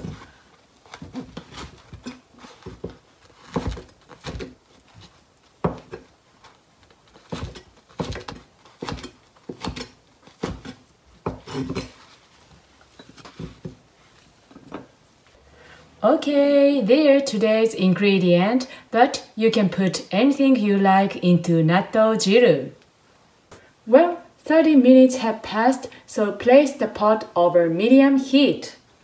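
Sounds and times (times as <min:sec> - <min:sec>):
knife cutting on plastic board: 0:07.2 - 0:12.0.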